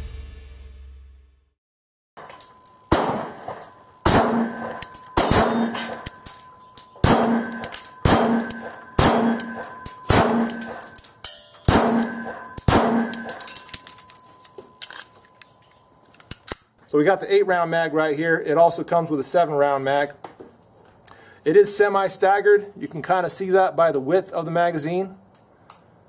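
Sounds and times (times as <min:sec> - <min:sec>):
steel target ringing: 0:02.2 - 0:14.8
pistol shots: 0:02.9 - 0:06.1, 0:07.0 - 0:10.8, 0:11.7 - 0:13.4.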